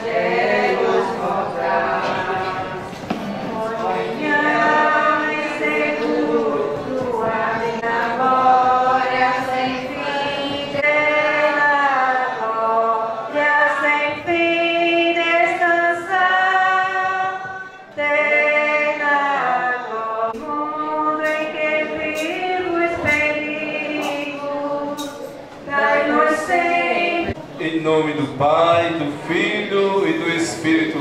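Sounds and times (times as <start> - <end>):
group singing a hymn: 0.0 - 27.4.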